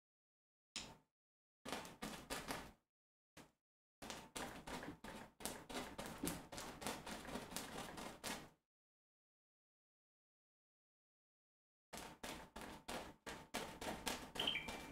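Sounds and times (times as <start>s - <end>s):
paintbrush scrubbing on canvas: 4.2s - 8.5s, 12.0s - 14.9s.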